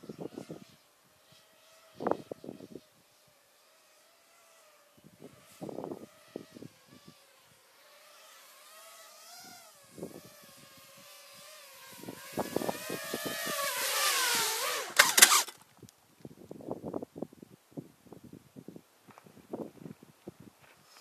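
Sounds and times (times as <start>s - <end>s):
drone motors whining: 0.0s - 15.6s
drone crashing on dirt: 9.7s - 15.9s
wind buffeting microphone: 9.9s - 15.4s.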